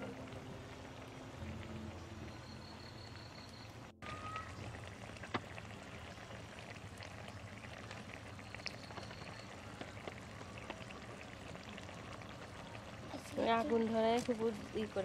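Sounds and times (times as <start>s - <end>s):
curry simmering and bubbling: 0.0s - 15.0s
fire pops and crackles: 4.0s - 15.0s.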